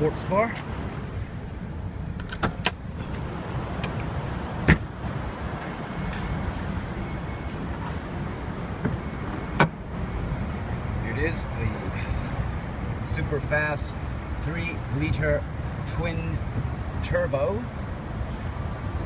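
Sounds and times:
latch clicks: 2.2 - 2.8.

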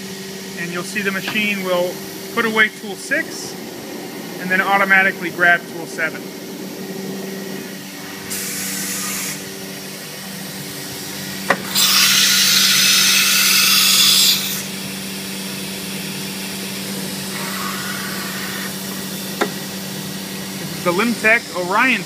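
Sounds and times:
steady machine hum: 0.0 - 22.0
compressed air hiss: 8.2 - 9.4.

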